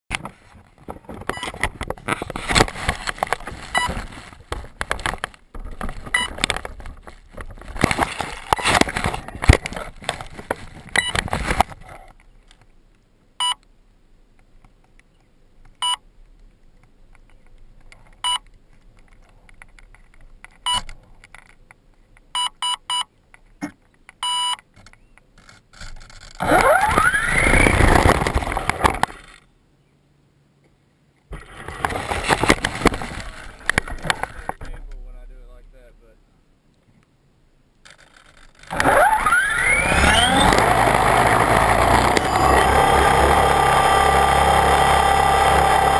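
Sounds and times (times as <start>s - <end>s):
handling clatter and knocks: 0.1s - 12.2s, 31.4s - 35.0s
short electronic beeps: 13.4s - 13.6s, 15.8s - 16.0s, 22.4s - 23.1s, 24.2s - 24.6s
rotor motor whine: 26.4s - 29.2s, 38.7s - 45.9s.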